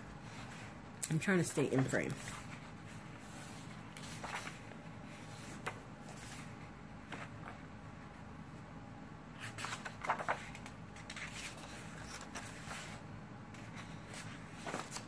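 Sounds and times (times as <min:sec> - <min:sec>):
paper pages rustling: 0:01.7 - 0:07.6, 0:09.4 - 0:13.0, 0:13.6 - 0:15.0.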